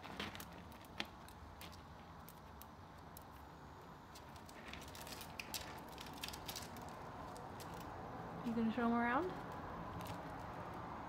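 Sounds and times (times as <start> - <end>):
claws clicking on wire cage: 0.0 - 3.4, 4.1 - 8.0, 9.4 - 10.9.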